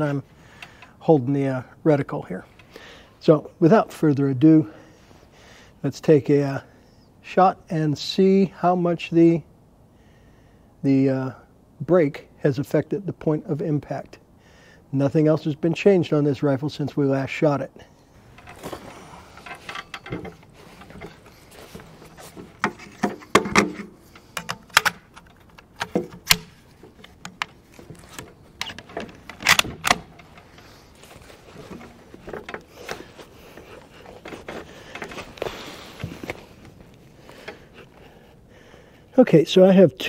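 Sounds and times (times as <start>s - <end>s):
handling clicks and knocks: 18.2s - 38.3s
rifle bolt clacking: 22.6s - 30.7s.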